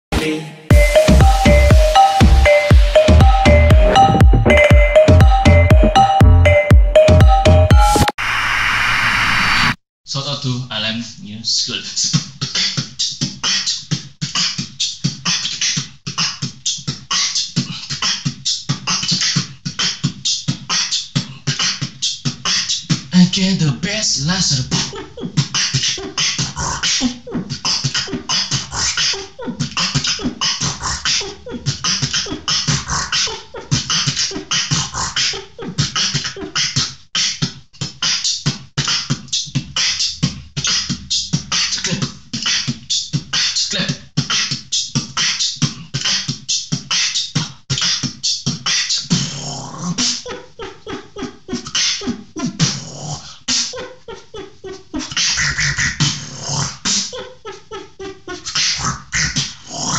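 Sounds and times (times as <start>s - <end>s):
person beatboxing: 0.7s - 8.1s, 11.8s - 59.9s.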